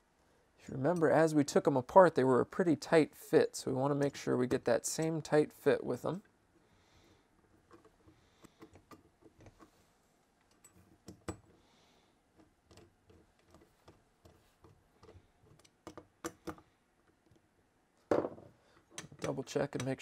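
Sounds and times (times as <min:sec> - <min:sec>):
screwdriver and metal parts clicking: 0:10.4 - 0:11.5, 0:18.8 - 0:20.0.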